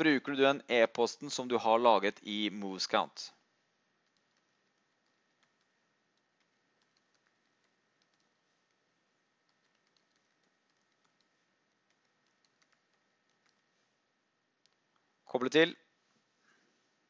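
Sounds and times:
low steady hiss: 0.0s - 17.0s
keyboard typing: 4.0s - 13.9s, 14.5s - 15.1s.

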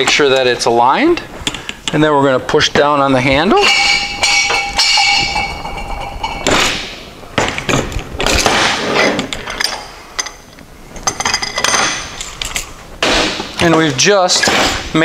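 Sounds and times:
high metallic ringing: 2.8s - 7.1s.

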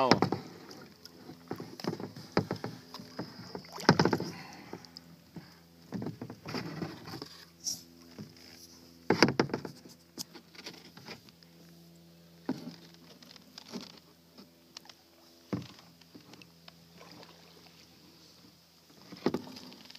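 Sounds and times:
water splashing: 0.0s - 5.1s, 16.3s - 18.0s
knocks against plastic hull: 1.8s - 4.4s.

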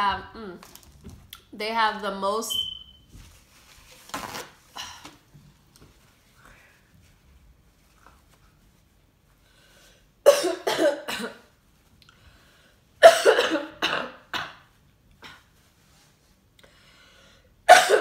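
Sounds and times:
woman coughing: 10.2s - 11.5s, 13.0s - 15.5s, 17.7s - 18.0s.

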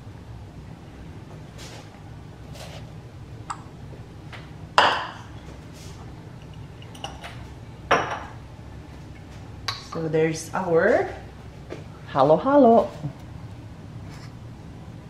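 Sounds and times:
glass and metal kitchenware clinking: 6.4s - 8.4s.

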